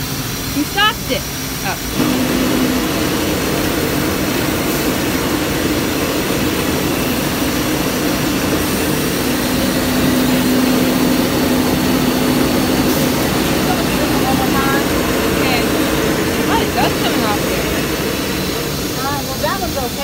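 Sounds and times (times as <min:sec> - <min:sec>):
mat cleaning machine running: 0:00.0 - 0:20.0.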